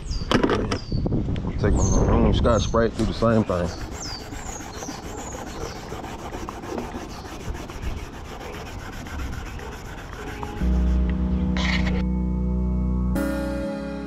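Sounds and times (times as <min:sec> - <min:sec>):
abrasive pad scuffing paint: 0:03.1 - 0:12.0.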